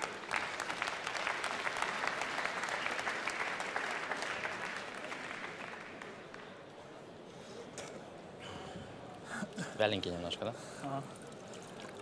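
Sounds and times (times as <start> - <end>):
crowd applauding: 0.0 - 6.4.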